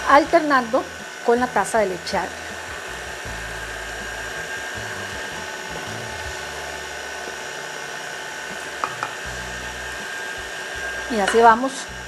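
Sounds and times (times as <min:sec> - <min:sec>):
stand mixer whining: 0:00.0 - 0:12.0.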